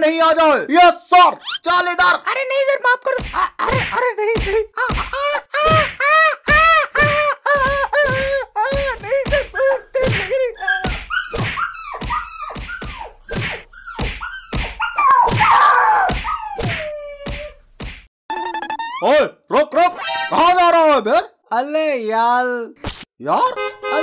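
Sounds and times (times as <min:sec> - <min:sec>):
pained yelps: 0:04.9 - 0:13.2, 0:13.8 - 0:17.6.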